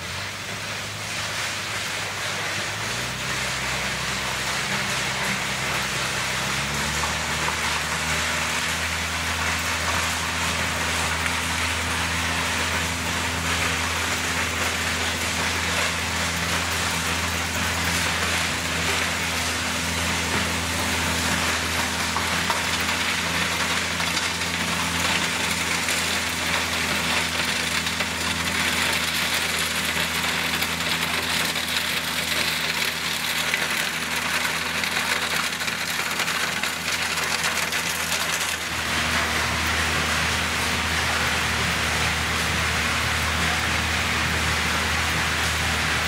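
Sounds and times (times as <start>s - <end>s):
diesel engine running: 0.0s - 46.0s.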